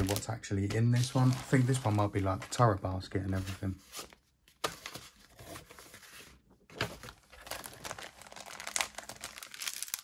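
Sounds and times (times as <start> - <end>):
plastic bag crinkling: 0.9 - 2.6, 7.1 - 10.0.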